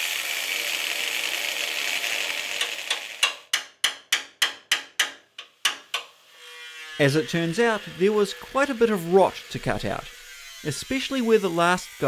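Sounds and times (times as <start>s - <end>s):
angle grinder grinding: 0.0s - 3.5s, 6.0s - 12.0s
hammer and chisel on metal: 2.6s - 6.2s.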